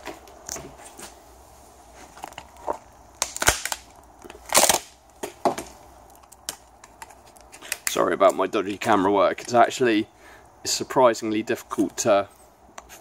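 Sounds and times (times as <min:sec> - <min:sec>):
plastic strips cracking and snapping: 0:02.2 - 0:08.8.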